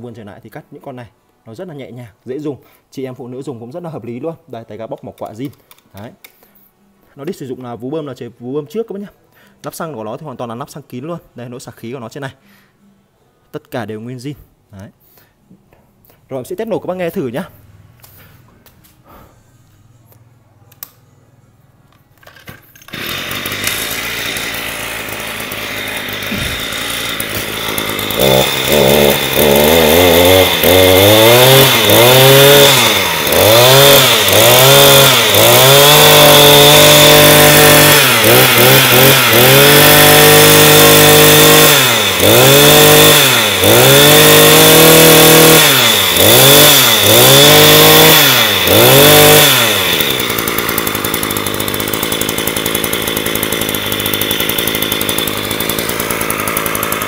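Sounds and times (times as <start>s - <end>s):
brush cutter engine revving: 22.9s - 57.0s.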